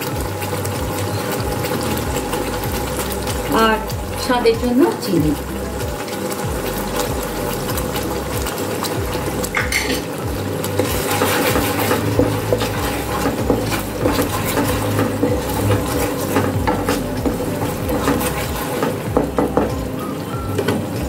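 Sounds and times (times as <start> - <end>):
paste sizzling in oil: 0.0 - 21.0
wooden spatula scraping a pan: 10.7 - 19.7.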